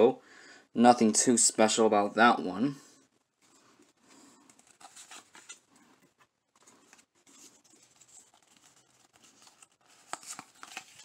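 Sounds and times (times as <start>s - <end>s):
cards sliding and rustling: 3.4s - 11.0s.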